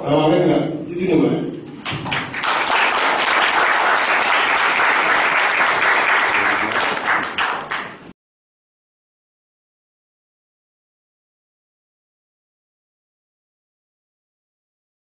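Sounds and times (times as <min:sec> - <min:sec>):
audience applauding: 0:01.9 - 0:08.1.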